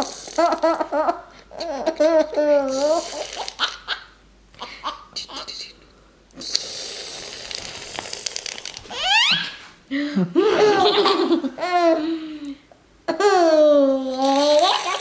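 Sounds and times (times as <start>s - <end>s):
baby laughing and squealing: 1.5s - 5.4s, 8.9s - 9.7s, 10.6s - 12.0s.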